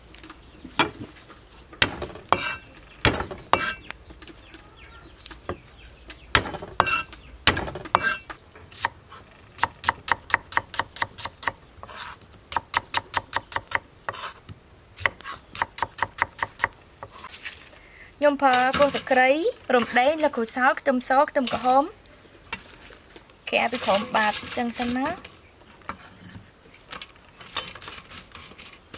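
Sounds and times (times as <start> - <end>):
knife chopping on wooden board: 1.8 - 3.8, 6.4 - 8.2.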